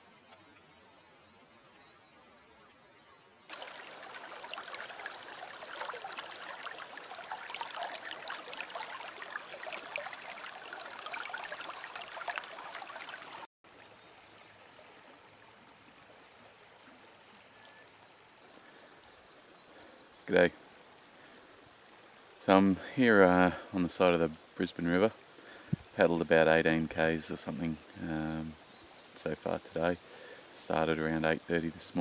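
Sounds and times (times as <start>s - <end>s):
soft river ambience: 0.0s - 32.0s
water splashing over rock: 3.5s - 13.5s.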